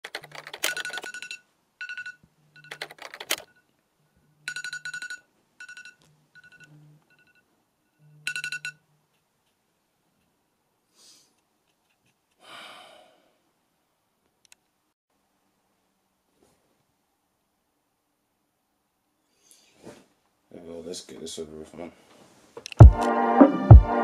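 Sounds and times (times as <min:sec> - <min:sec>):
typewriter text beeping clicks: 0:00.0 - 0:03.6.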